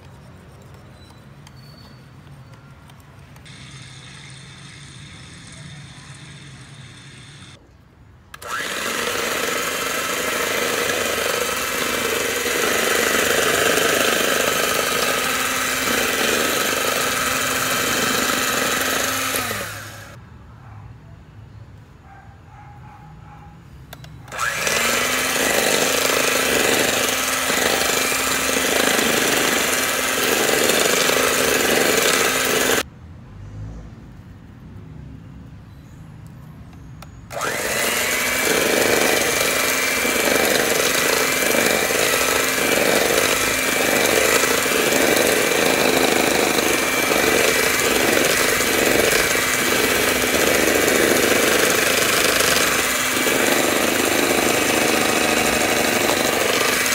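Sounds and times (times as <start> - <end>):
electric hand mixer whirring: 3.4 - 7.6, 8.4 - 20.2, 24.3 - 32.9, 37.3 - 56.9.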